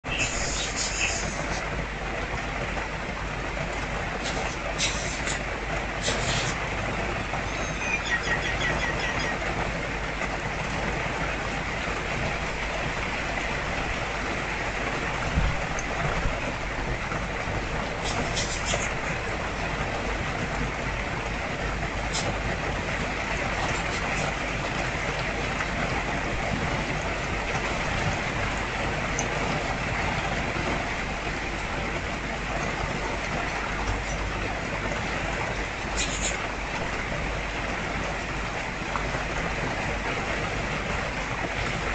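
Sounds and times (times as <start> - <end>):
fountain trickling: 0.0 - 41.9
rain hissing: 0.0 - 41.9
bird chirps: 7.5 - 9.4.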